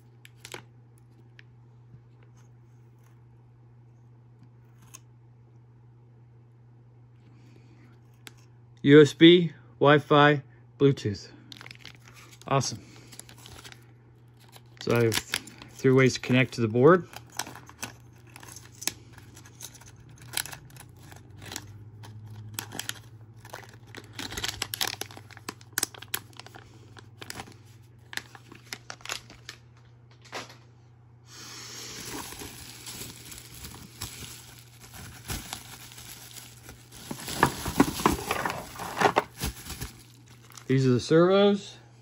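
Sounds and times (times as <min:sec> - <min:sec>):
plastic bags crinkling: 0:11.5 - 0:29.8, 0:31.9 - 0:40.8.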